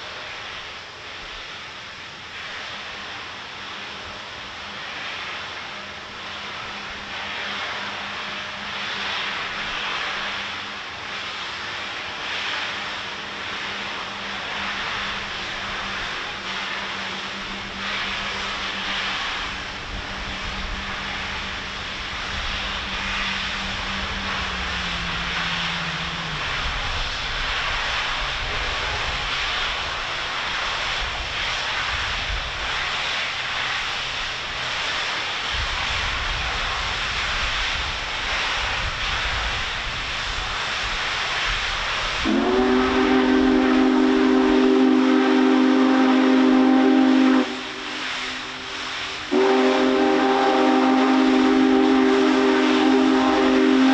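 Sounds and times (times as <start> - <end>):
steam locomotive hiss and rumble: 0.0 - 53.9
chime steam whistle blast: 42.2 - 53.9.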